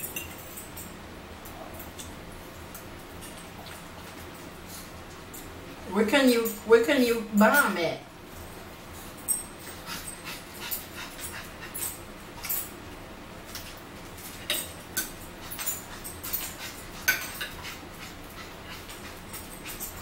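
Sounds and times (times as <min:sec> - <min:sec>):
fork clicking on a plate: 0:16.4 - 0:17.7.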